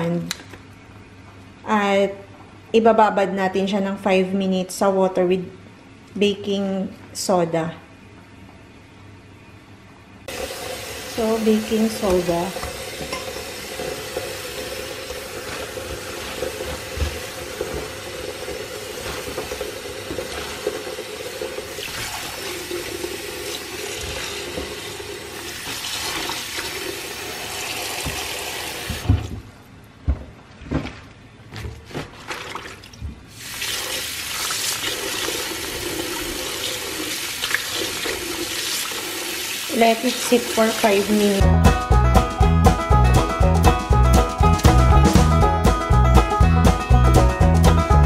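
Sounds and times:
tap water running into bowl: 10.3s - 29.1s
water splashing over leaves: 15.1s - 18.0s, 18.9s - 21.0s.

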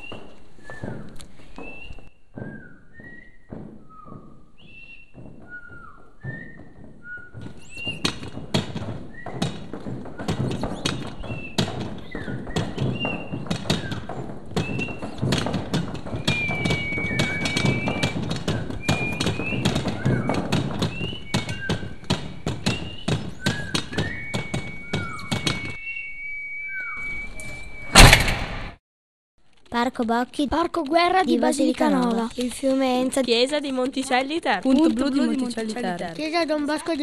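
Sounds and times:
whistle-like tone: 0.0s - 8.4s, 9.0s - 28.2s
clip-clop tapping and knocking: 0.0s - 25.8s
downward sliding chirps: 16.1s - 28.2s.

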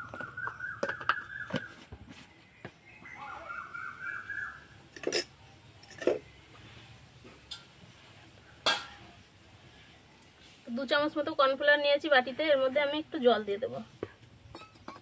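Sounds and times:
bird calling: 0.0s - 1.9s, 2.8s - 4.9s
steel bowls clinking: 4.8s - 6.3s, 7.5s - 7.8s, 8.6s - 9.2s, 14.5s - 15.0s.

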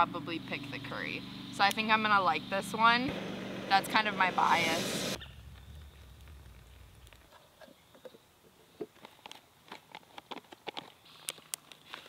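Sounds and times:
lawn tractor engine rumble: 0.0s - 8.2s.

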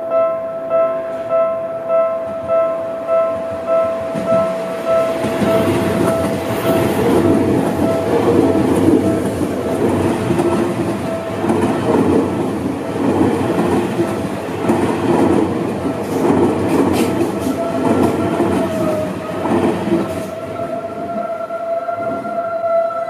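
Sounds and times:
crossing warning bell ringing: 0.0s - 23.0s
train wheels over rail joints: 3.4s - 20.7s.

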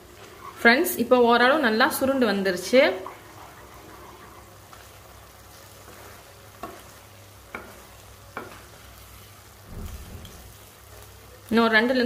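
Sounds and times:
wooden spatula stirring thick mixture: 0.0s - 10.8s
low sizzle: 0.0s - 12.0s
spatula knocking against pan: 7.5s - 7.8s.

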